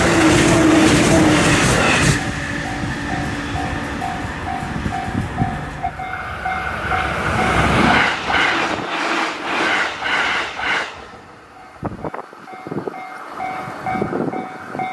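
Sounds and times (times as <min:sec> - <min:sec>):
electric train passing: 0:00.0 - 0:14.9
wheels clacking over rail joints: 0:00.0 - 0:14.9.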